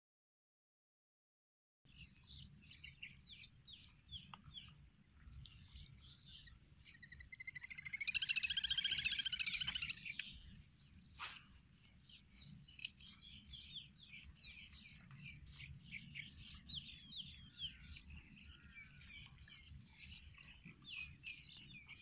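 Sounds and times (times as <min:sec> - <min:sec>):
birds chirping: 0:01.9 - 0:22.0
buzzy bird trill: 0:07.1 - 0:10.2.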